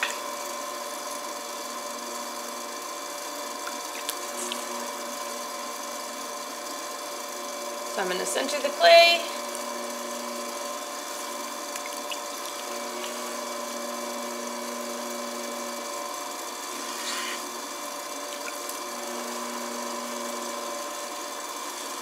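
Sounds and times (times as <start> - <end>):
potter's wheel motor whine: 0.0 - 22.0
wet clay rubbing: 16.7 - 17.5.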